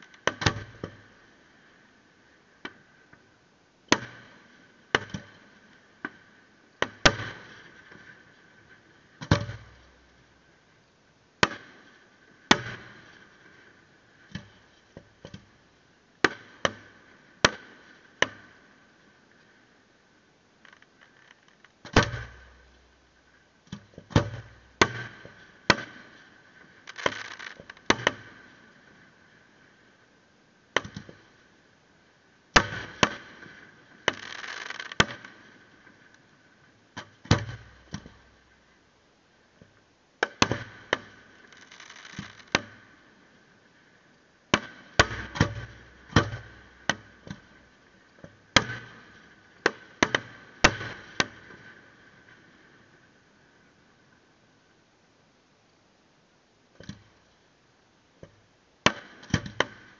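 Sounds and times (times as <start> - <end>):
crackling hiss of fireworks: 0.0 - 59.9
fireworks bangs: 26.9 - 27.8, 34.1 - 35.0, 41.4 - 42.5.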